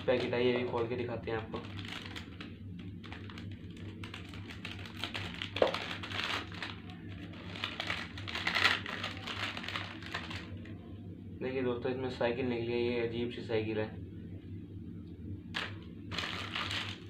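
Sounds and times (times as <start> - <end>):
plastic packet crinkling: 1.5 - 10.6, 15.6 - 17.0.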